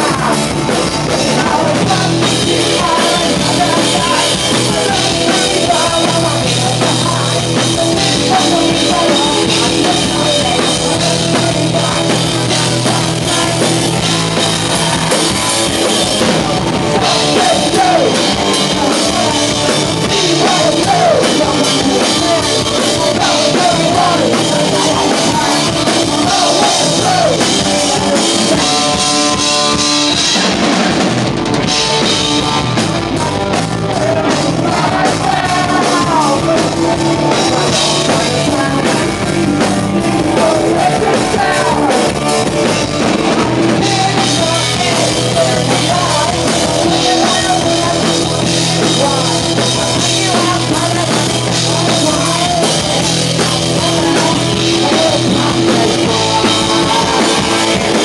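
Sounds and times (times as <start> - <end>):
punk rock band playing: 0.0 - 58.0
man shouting vocals: 17.0 - 19.3.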